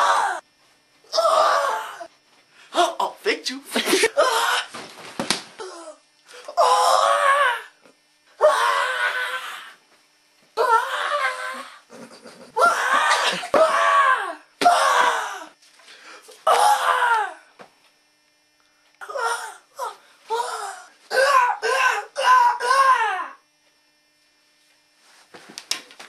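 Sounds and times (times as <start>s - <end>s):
person crying and wailing: 3.8s - 4.8s, 8.4s - 9.8s, 10.6s - 15.6s, 16.4s - 17.4s, 19.0s - 23.4s.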